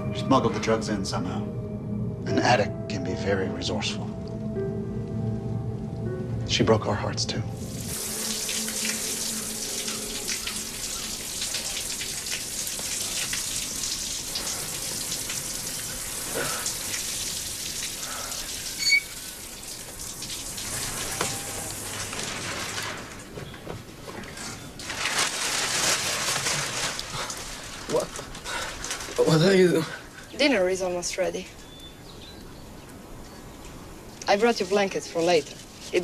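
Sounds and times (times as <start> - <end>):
shower water splashing on stone: 7.6 - 23.4, 24.7 - 29.7.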